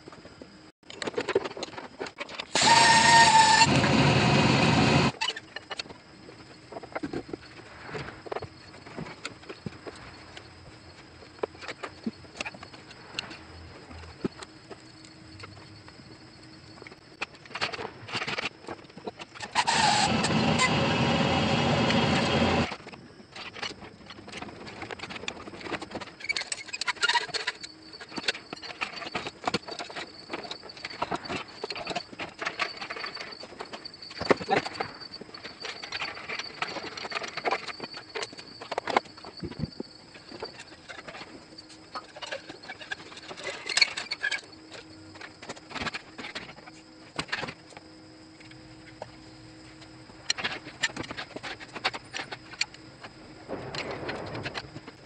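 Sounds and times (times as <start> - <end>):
loud steady mechanical noise: 2.4 - 5.2, 19.3 - 23.6.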